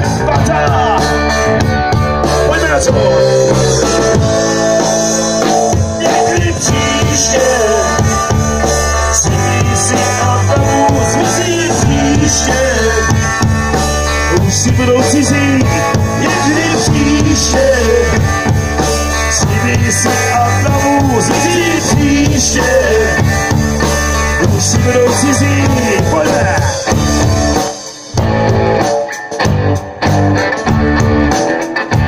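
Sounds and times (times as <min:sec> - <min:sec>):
person singing: 0:00.0 - 0:01.6, 0:02.3 - 0:13.5, 0:14.2 - 0:23.6, 0:24.3 - 0:26.9
live rock band playing: 0:00.0 - 0:32.0.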